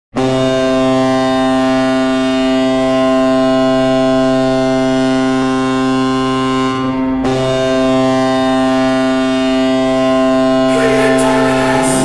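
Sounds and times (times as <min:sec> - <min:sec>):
hockey goal horn blast: 0:05.9 - 0:12.0.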